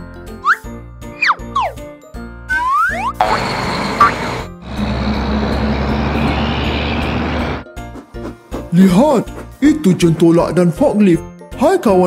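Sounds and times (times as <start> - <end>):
garbage truck engine rumble: 3.2 - 7.6
children's background music: 7.6 - 12.0.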